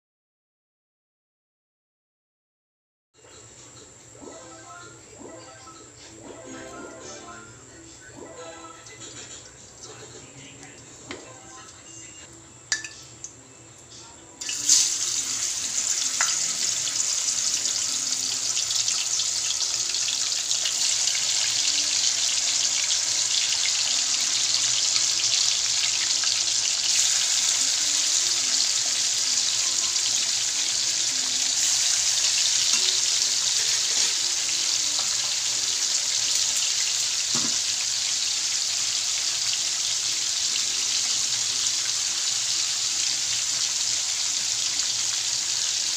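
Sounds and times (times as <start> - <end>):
meat sizzling in hot oil: 14.4 - 45.9.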